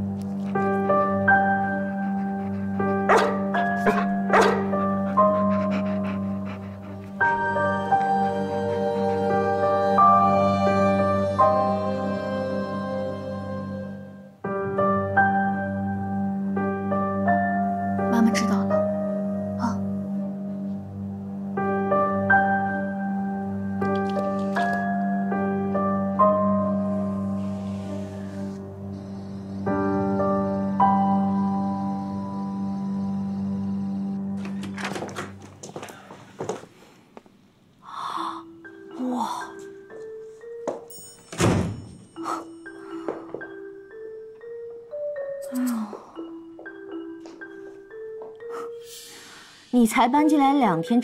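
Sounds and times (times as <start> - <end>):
slow melody of ringing notes: 6.8 - 18.2, 24.9 - 34.4, 38.0 - 49.5
door swinging shut: 34.4 - 36.0, 41.3 - 42.0
marimba-like background music: 38.0 - 41.3, 42.0 - 49.7.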